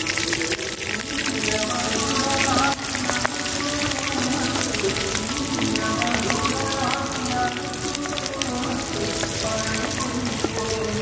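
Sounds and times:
background music: 0:00.0 - 0:11.0
food deep-frying in hot oil: 0:00.0 - 0:11.0.

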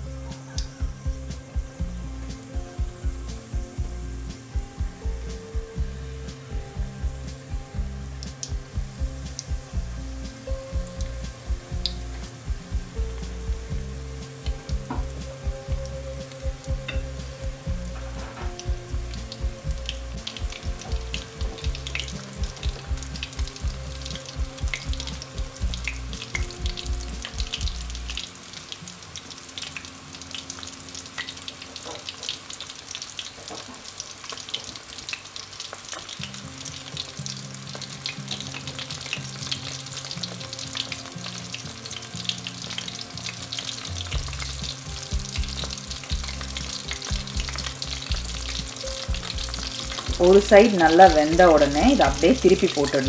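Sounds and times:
low held notes: 0:00.0 - 0:28.3, 0:39.2 - 0:53.0
prawns deep-frying in bubbling oil: 0:00.0 - 0:53.0.

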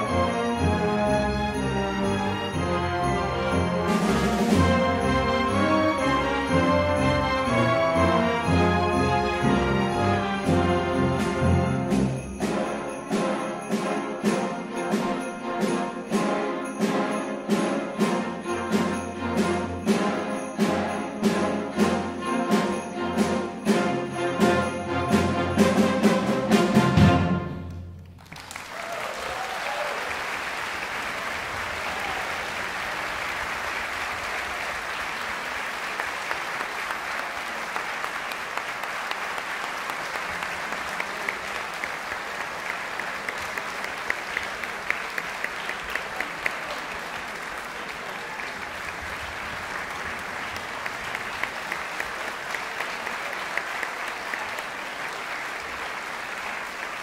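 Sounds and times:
orchestra chord: 0:00.0 - 0:27.9
audience applause: 0:28.0 - 0:57.0.

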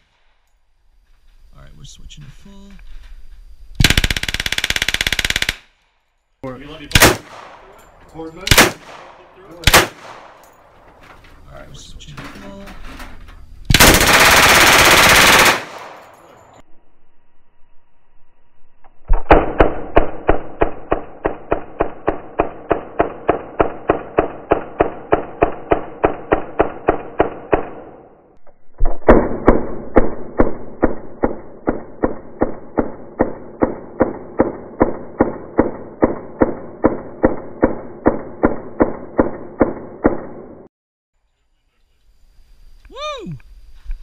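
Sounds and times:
submachine gun full-auto bursts: 0:03.8 - 0:05.7, 0:13.7 - 0:16.1.

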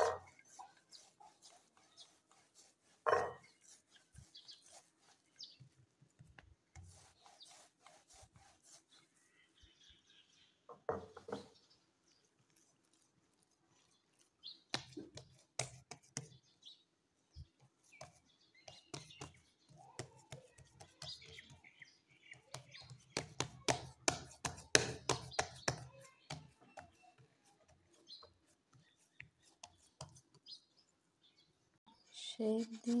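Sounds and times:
hands slapping meat mixture: 0:14.1 - 0:16.4, 0:22.3 - 0:27.0.

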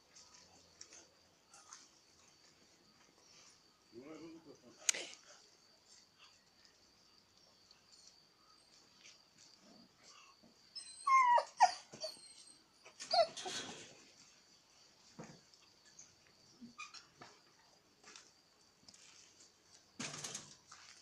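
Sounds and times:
puppies yelping and whimpering: 0:10.8 - 0:13.6.

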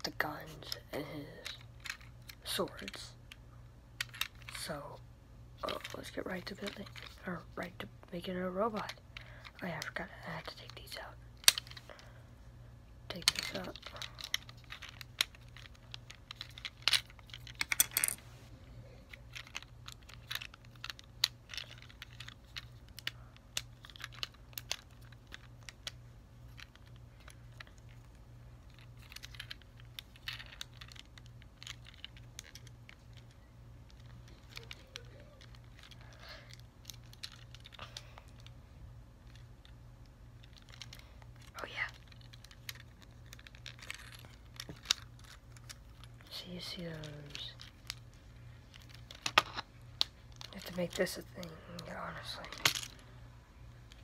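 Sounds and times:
plastic toy parts clicking: 0:04.0 - 0:04.7, 0:13.1 - 0:18.2, 0:19.3 - 0:38.5.

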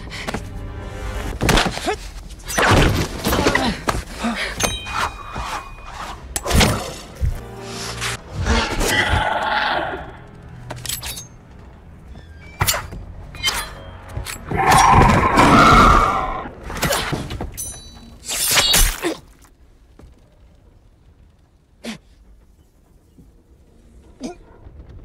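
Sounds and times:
film music: 0:00.0 - 0:18.3.

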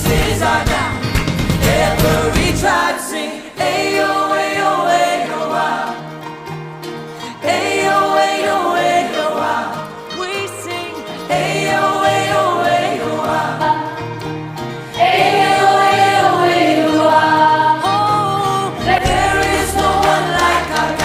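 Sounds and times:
band playing: 0:00.0 - 0:02.9, 0:18.8 - 0:21.0
group of voices singing: 0:00.0 - 0:21.0.

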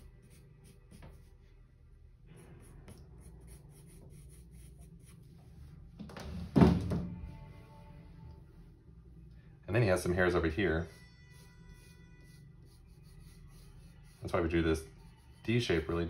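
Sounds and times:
colored pencil scratching on paper: 0:00.0 - 0:01.4, 0:02.4 - 0:05.3, 0:10.8 - 0:16.0.

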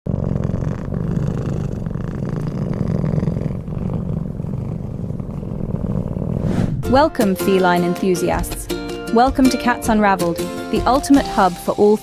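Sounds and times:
cat purring: 0:00.1 - 0:06.5.

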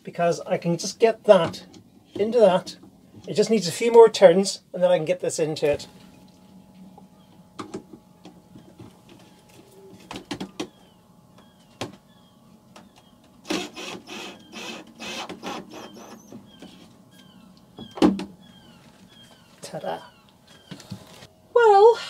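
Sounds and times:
drill driving screw into wood: 0:13.4 - 0:16.3.

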